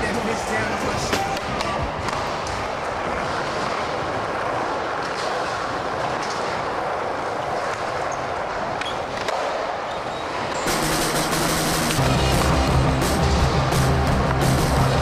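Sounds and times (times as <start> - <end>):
skateboard wheels rolling on concrete: 0.0 - 15.0
skateboard clicks: 1.0 - 10.7.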